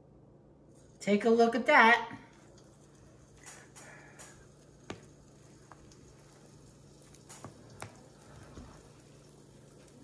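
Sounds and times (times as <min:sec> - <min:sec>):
dough squishing: 0:02.4 - 0:10.0.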